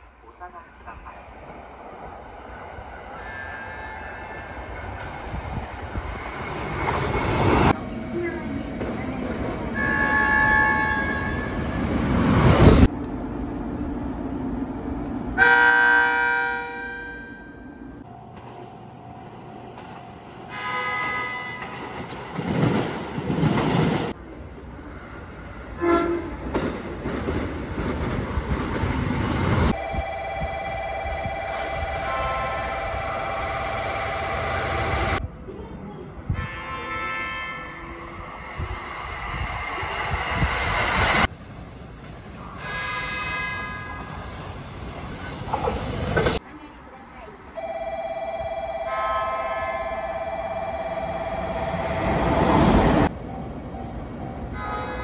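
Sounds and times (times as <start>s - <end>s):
train running noise: 0.0s - 55.0s
electric train horn: 15.4s - 17.6s, 20.5s - 21.7s, 25.8s - 26.4s, 29.8s - 35.0s, 36.3s - 38.1s, 47.6s - 52.1s, 54.6s - 55.0s.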